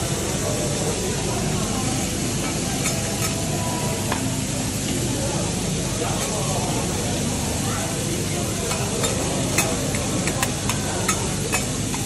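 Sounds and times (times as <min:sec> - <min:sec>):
food sizzling on a griddle: 0:00.0 - 0:12.0
metal spatula clicking on plate: 0:08.7 - 0:12.0.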